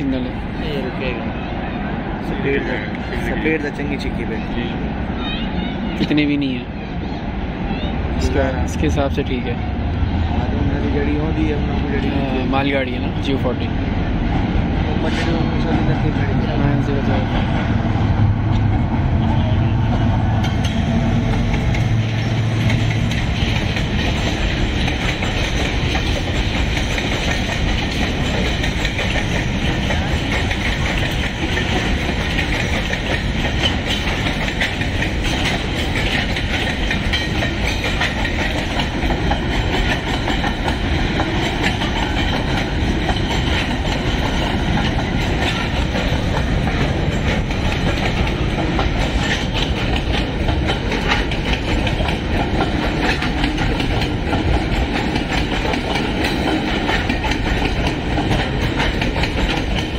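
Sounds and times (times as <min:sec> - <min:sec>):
train wheels clattering over rail joints: 0:20.3 - 0:59.9.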